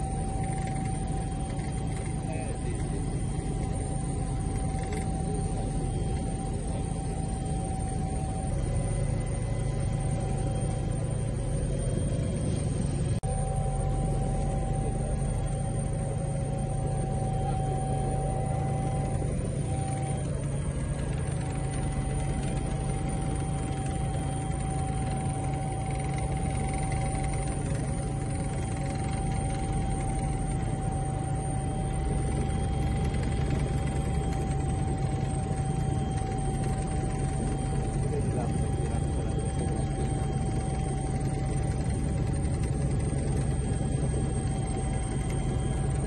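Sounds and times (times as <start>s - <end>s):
helicopter engine and rotor drone: 0.0s - 46.0s
thin constant whine: 0.0s - 46.0s.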